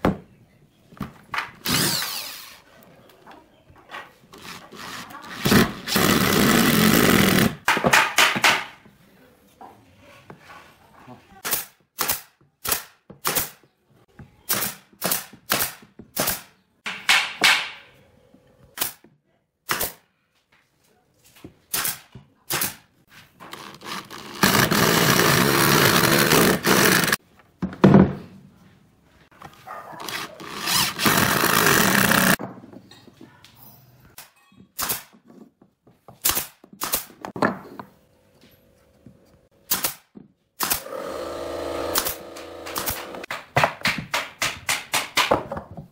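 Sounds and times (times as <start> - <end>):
electric drill driving screws: 1.6 - 2.6, 23.5 - 27.2, 30.0 - 32.4, 40.6 - 43.3
nail gun firing: 11.4 - 13.6, 14.5 - 17.8, 18.8 - 19.0, 19.7 - 20.0, 21.7 - 22.8, 24.4 - 27.2, 30.1 - 32.4, 34.8 - 35.2, 36.2 - 37.2, 39.6 - 45.4.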